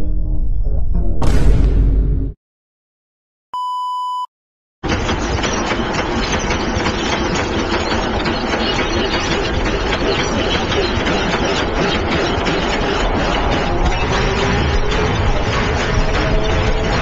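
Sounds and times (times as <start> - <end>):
beep-like tone: 3.6 - 4.3.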